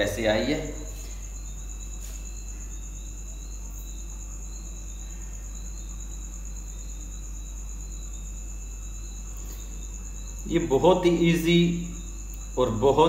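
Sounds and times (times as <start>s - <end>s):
high-pitched cricket trill: 0.0s - 13.0s
insect broken chirping: 8.7s - 12.6s.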